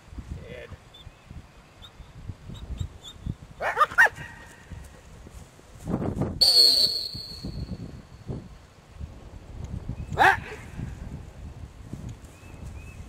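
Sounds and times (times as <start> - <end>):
high steady tone: 6.4 - 7.8.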